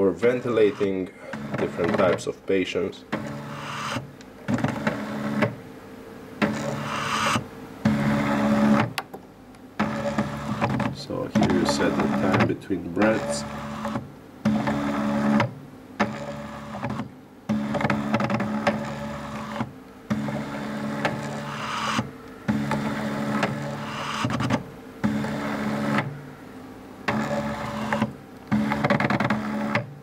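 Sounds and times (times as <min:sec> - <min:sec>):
stepper motor whining: 0:09.8 - 0:26.2.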